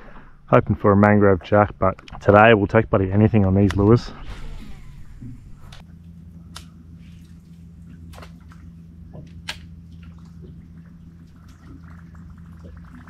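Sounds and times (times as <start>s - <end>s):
electric trolling motor humming: 4.1s - 12.8s.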